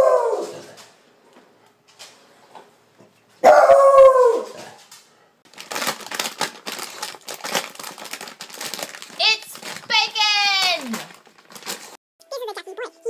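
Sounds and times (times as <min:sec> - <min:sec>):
dog howling: 0:00.0 - 0:00.7, 0:03.4 - 0:04.7
dog tearing paper wrapping: 0:05.5 - 0:12.0.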